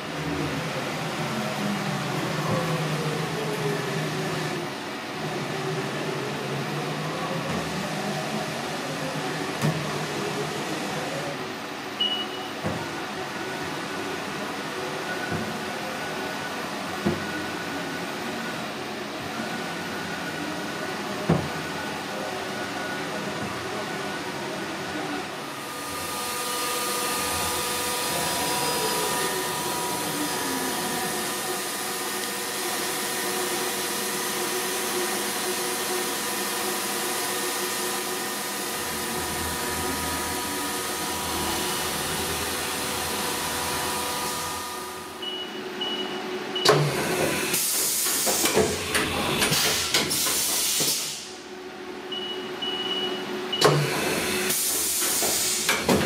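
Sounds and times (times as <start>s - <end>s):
machine running hiss and whine: 0.0s - 52.1s, 53.2s - 56.0s
hiss of air: 49.5s - 51.4s, 54.5s - 55.8s.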